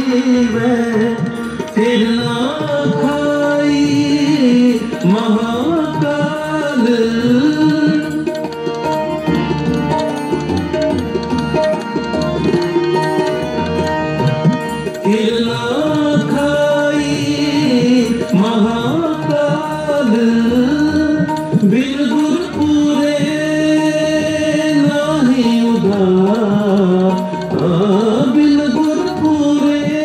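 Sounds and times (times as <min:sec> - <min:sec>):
person singing: 0:00.0 - 0:08.6, 0:14.9 - 0:30.0
steady instrumental tones: 0:00.0 - 0:30.0
tabla: 0:00.0 - 0:30.0.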